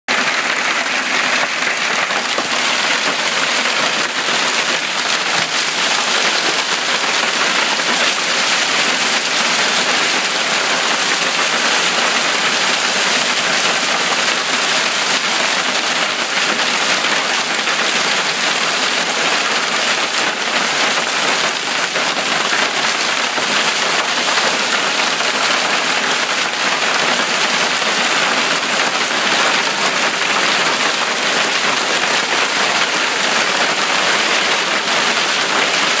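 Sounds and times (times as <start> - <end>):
hail and rain pelting the ground: 0.1 - 36.0.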